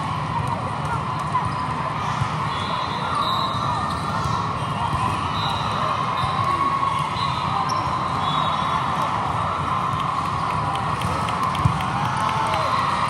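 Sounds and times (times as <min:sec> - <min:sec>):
crowd voices: 0:00.0 - 0:13.0
volleyballs hit and bouncing: 0:08.8 - 0:13.0.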